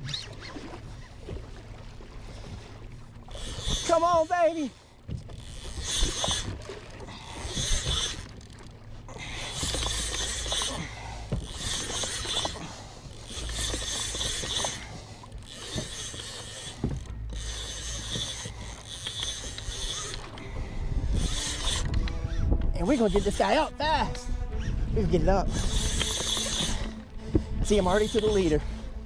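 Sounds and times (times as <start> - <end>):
fishing reel ratcheting whir: 3.3 - 23.6, 25.4 - 28.8.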